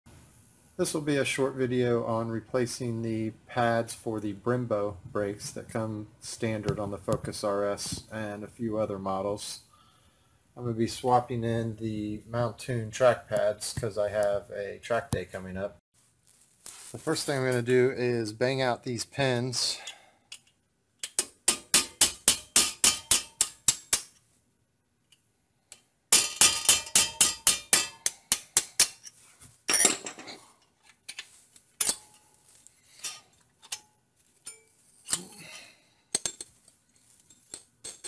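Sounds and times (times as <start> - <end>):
hammer tapping metal punch: 21.1 - 24.1, 26.2 - 29.0.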